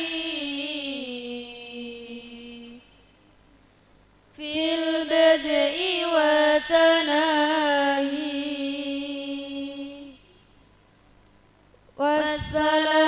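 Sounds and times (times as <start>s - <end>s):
woman chanting: 0.0s - 3.1s, 4.4s - 10.6s, 12.0s - 13.0s.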